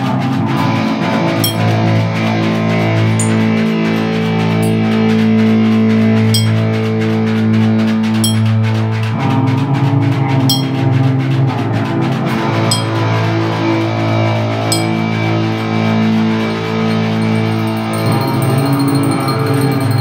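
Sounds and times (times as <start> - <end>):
electric guitar and bass notes: 0.0 - 20.0
sharp click: 1.4 - 1.8, 10.5 - 10.8, 12.7 - 13.0, 14.7 - 15.0.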